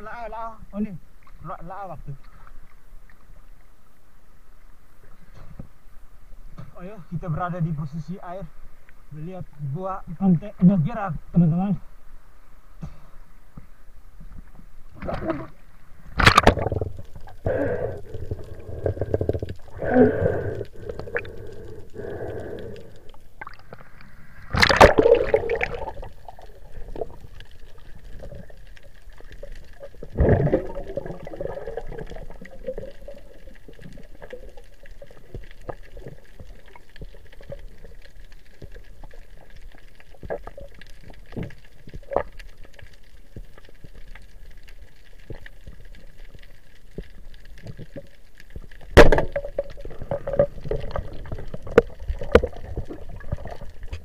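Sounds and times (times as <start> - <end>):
faint underwater clicks: 4.6 - 10.8, 12.7 - 54.0
sea water sloshing and splashing: 14.3 - 54.0
muffled underwater sound: 14.9 - 44.3
loud splash: 24.5 - 26.1.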